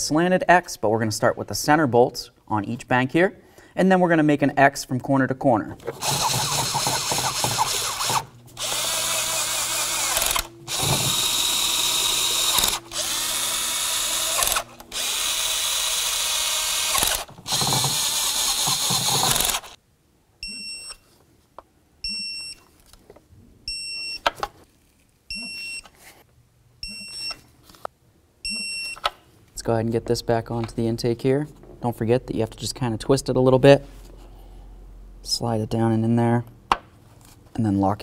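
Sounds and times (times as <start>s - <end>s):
power driver running bolts: 5.8s - 19.8s
torque wrench short high beeps: 20.4s - 21.0s.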